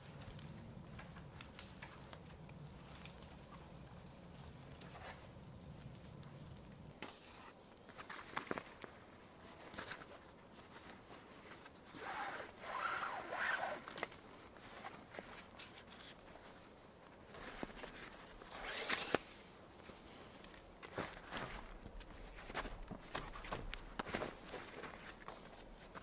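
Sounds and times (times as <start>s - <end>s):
canvas rustling and rubbing: 9.4s - 20.0s.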